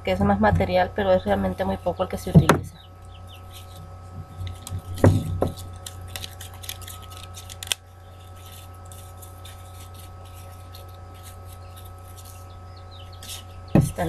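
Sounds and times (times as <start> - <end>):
steady low hum: 0.0 - 14.0
ribbon clicking and rustling: 4.4 - 12.4.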